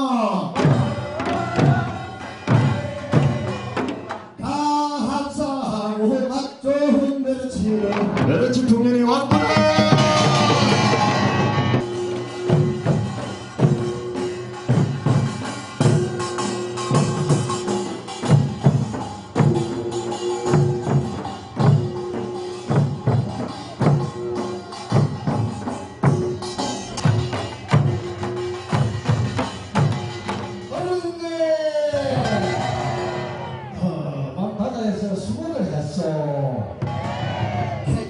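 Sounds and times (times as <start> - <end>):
barrel drums beating: 0.6 - 4.4, 7.8 - 31.2
group singing: 0.9 - 4.1.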